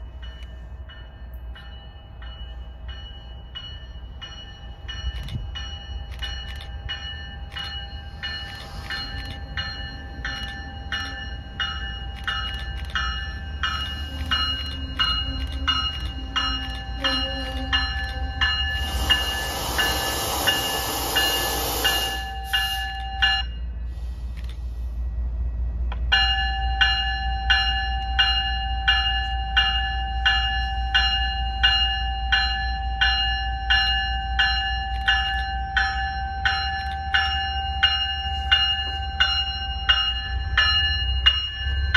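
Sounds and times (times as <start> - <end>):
low train rumble: 0.0 - 41.9
train bell ringing: 0.0 - 41.9
loud hissing burst: 18.8 - 22.9.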